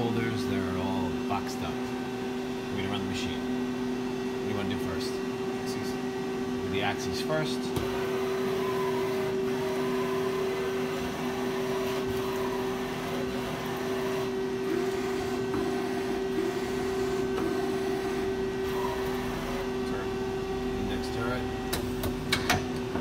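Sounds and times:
constant machine tone: 0.0 - 23.0
machine hum: 0.0 - 23.0.

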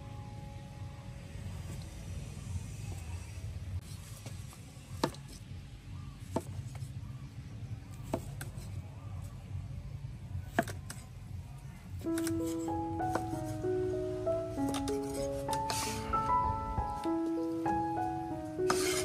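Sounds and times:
soft melodic music: 12.0 - 19.0.

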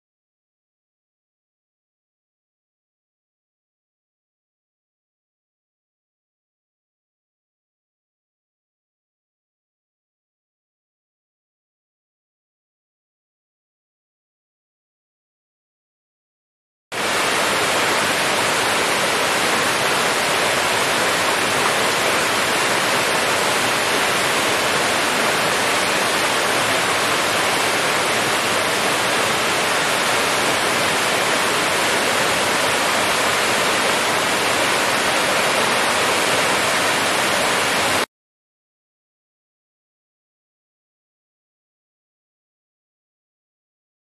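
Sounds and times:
waterfall rushing: 17.0 - 38.1.

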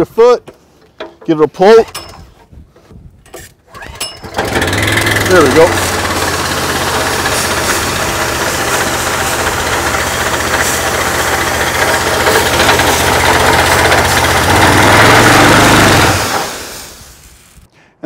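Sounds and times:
pressure washer engine running: 4.4 - 17.6.

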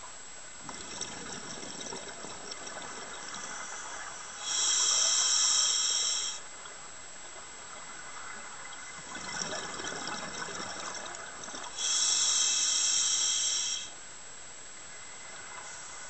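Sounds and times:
bubbling exhale underwater: 0.6 - 6.3
hissing regulator inhale: 3.2 - 6.5, 11.7 - 14.0.

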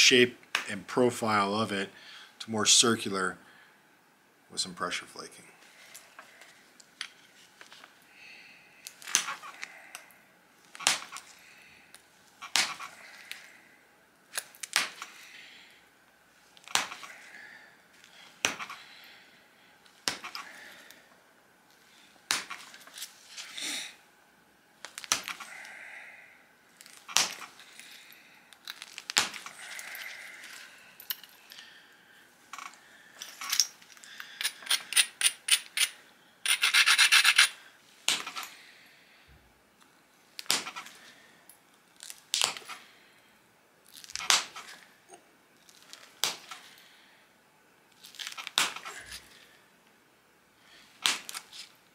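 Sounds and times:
stone flake cracking off: 24.8 - 25.5, 26.8 - 29.8, 48.0 - 49.3
stone scraping stone edge: 34.4 - 37.6.

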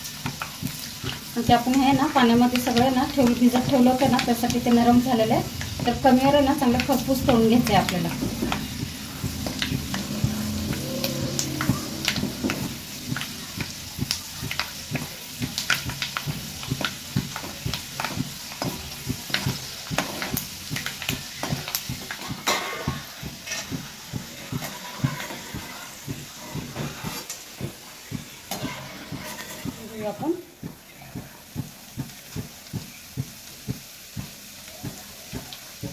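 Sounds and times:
seeds sizzling in oil: 0.0 - 35.9
metal spatula scraping pan: 22.1 - 23.8, 24.4 - 27.4, 28.5 - 30.2.

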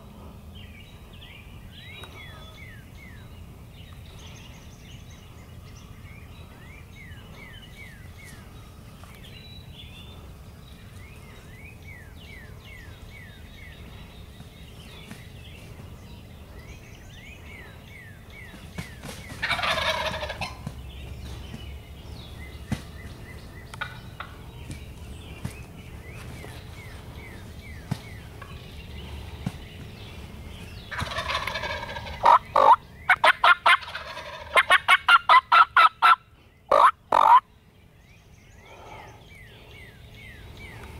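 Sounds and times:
turkey gobbling: 19.4 - 20.6, 30.9 - 37.4
turkey yelping: 19.4 - 20.6, 30.9 - 37.4.

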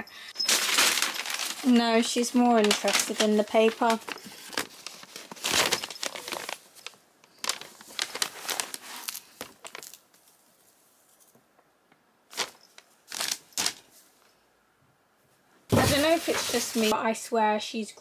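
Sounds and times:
paper crinkling and rustling: 0.4 - 11.4, 12.3 - 14.1, 15.7 - 17.0.

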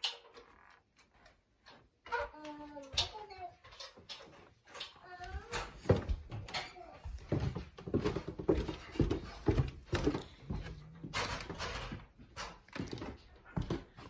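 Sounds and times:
footsteps on wooden stairs: 5.0 - 14.0.

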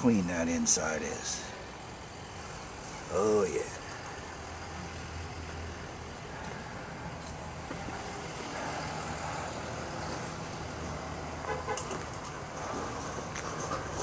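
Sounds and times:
diesel truck engine idling: 0.0 - 11.5.

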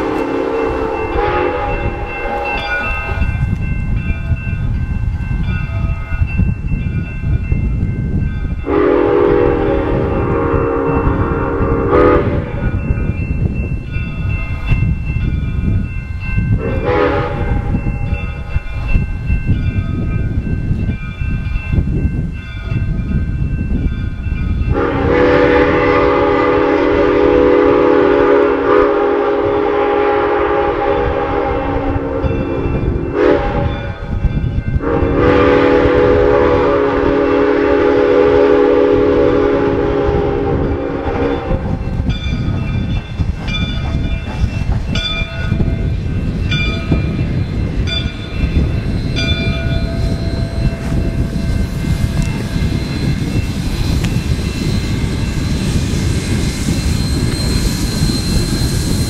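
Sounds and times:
steam whistle blasts: 0.0 - 3.2, 8.7 - 12.6, 16.6 - 17.7, 24.7 - 34.0, 34.8 - 41.8
moving train rumble: 0.0 - 59.0.

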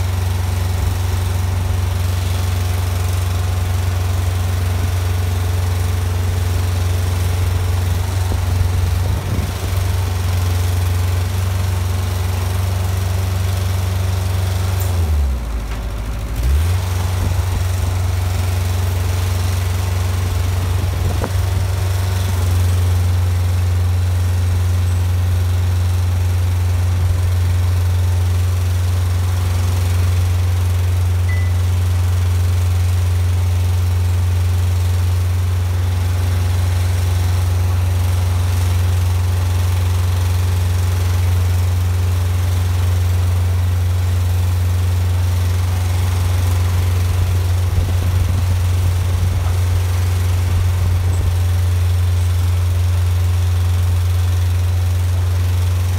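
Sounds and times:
engine running steadily: 0.0 - 55.9.

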